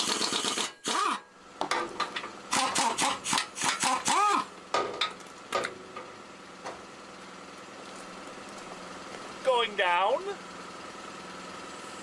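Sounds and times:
air impact wrench whirring: 0.0s - 1.2s, 2.5s - 4.5s.

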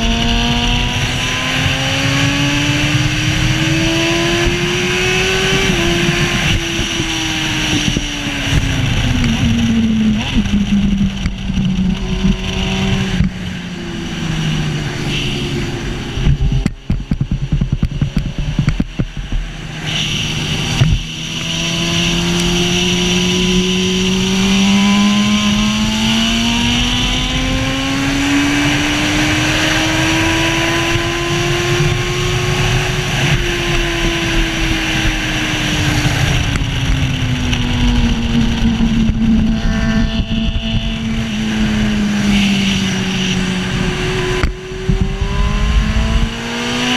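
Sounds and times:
racing engine at speed: 0.0s - 46.9s
wind rushing: 0.0s - 46.9s.

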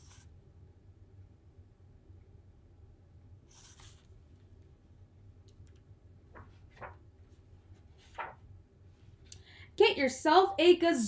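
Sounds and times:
book pages rustling: 6.3s - 8.5s.

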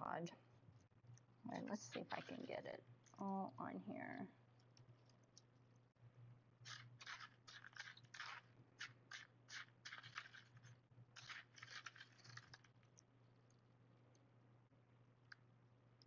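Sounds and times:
fingers scratching through crushed glass: 6.6s - 12.7s.

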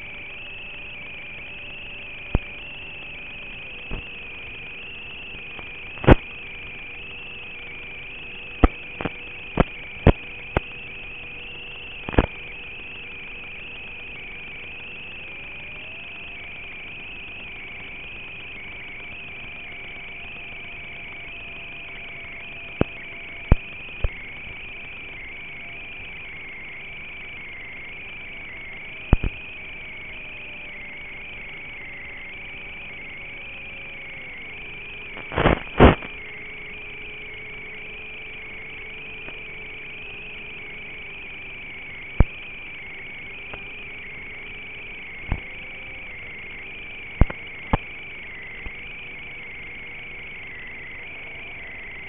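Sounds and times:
steady radio hiss: 0.0s - 13.6s, 35.0s - 36.8s
sharp pops: 5.6s - 6.4s, 8.6s - 10.7s, 12.0s - 12.4s, 22.8s - 24.2s, 29.1s - 29.4s, 35.2s - 36.2s, 47.2s - 47.9s.

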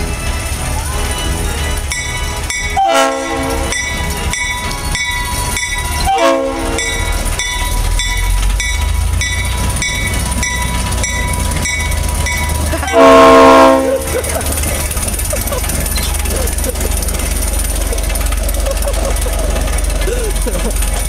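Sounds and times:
diesel engine rumble: 0.0s - 21.0s
wheels clicking on rails: 0.0s - 21.0s
locomotive horn blasts: 2.8s - 4.0s, 6.0s - 7.2s, 12.8s - 14.1s.

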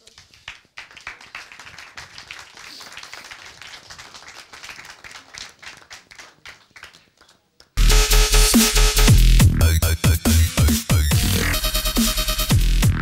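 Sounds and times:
audience applause: 0.0s - 7.8s.

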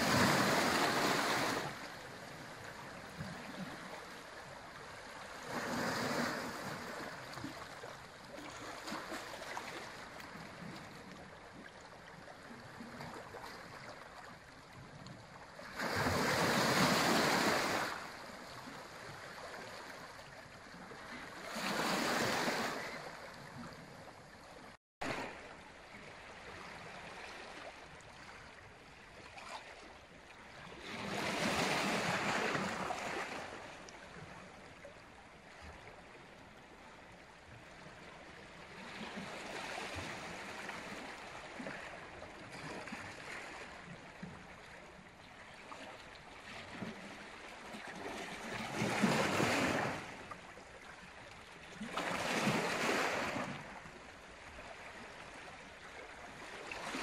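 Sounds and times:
waves washing over rocks: 0.0s - 2.0s, 15.7s - 18.2s, 48.7s - 50.2s.

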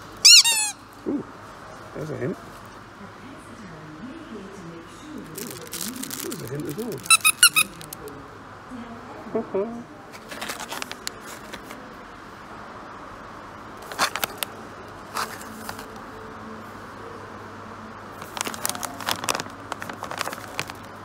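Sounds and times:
background hum: 0.0s - 12.4s
plastic pouches crinkling: 5.2s - 8.1s, 10.2s - 11.8s, 13.8s - 14.5s, 18.2s - 21.0s.

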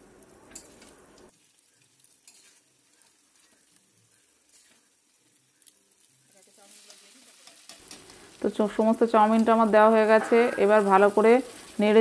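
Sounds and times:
noodles sizzling in a wok: 0.0s - 12.0s
spatula scraping: 1.8s - 5.4s.

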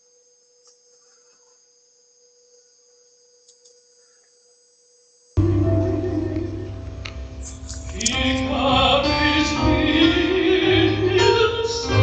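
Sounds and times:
faint steady hum: 0.0s - 12.0s
loud music: 5.4s - 12.0s.

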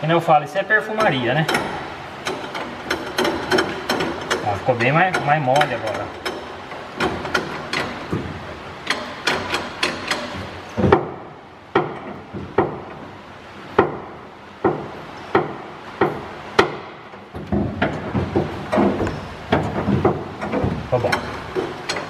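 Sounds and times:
truck clutch pedal knocking: 13.8s - 22.0s.

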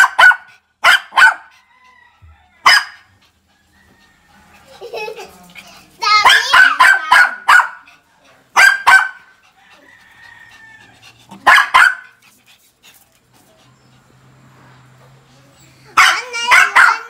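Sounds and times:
small dog yapping: 0.0s - 1.5s, 2.6s - 3.1s, 11.3s - 12.1s, 16.0s - 17.0s.

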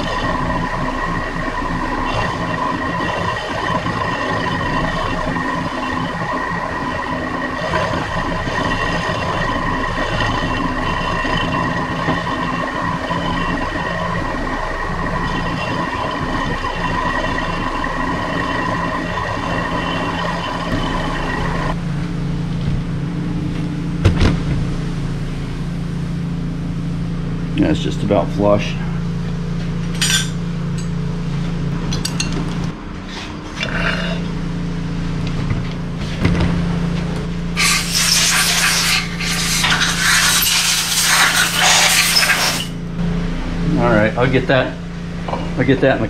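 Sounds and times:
milling machine whining: 0.0s - 22.1s, 37.5s - 43.1s
low hum: 0.0s - 46.0s
metal cutting rasp: 37.6s - 42.8s.

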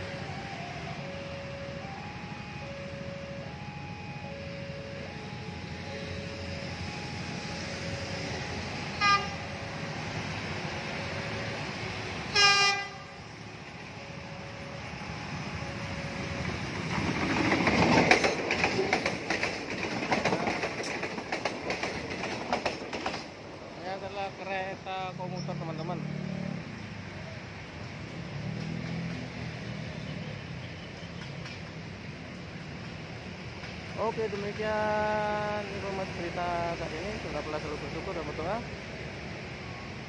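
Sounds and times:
level-crossing warning bell: 0.0s - 12.3s
train horn: 8.5s - 9.6s, 12.2s - 13.3s
train wheels clattering on rails: 16.4s - 23.5s, 30.6s - 35.4s.

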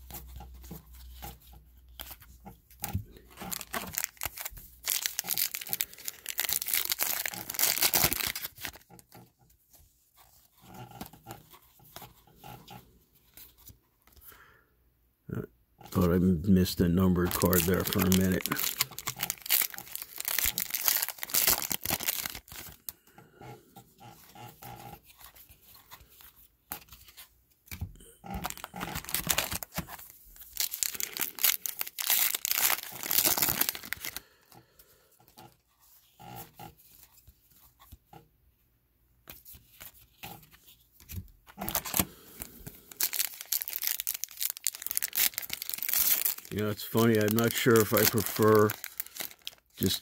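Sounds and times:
foil wrappers crinkling: 2.9s - 9.0s, 15.9s - 23.0s, 28.2s - 34.3s, 41.0s - 50.0s.

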